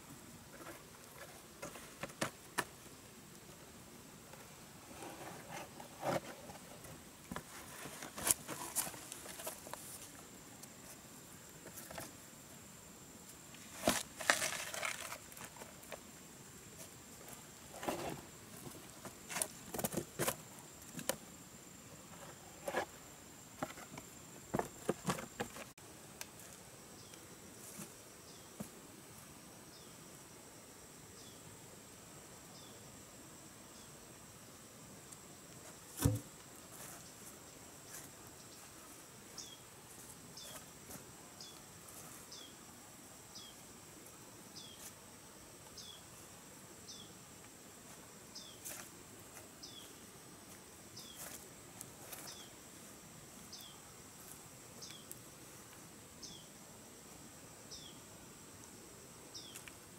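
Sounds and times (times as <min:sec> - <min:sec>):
high insect whine: 0:00.0 - 0:59.9
dry bark rustling and crackling: 0:13.6 - 0:16.0
rock knocking on bark: 0:36.0 - 0:36.3.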